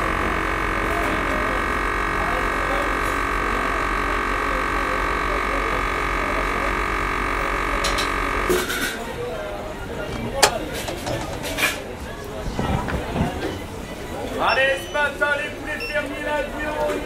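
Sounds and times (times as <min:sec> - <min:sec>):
vacuum sealer pump humming: 0:00.0 - 0:08.9, 0:09.6 - 0:11.9.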